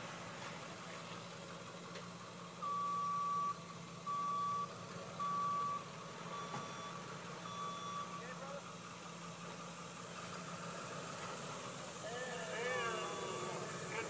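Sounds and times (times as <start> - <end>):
truck reversing alarm beeping: 2.4 - 8.6, 12.0 - 14.0.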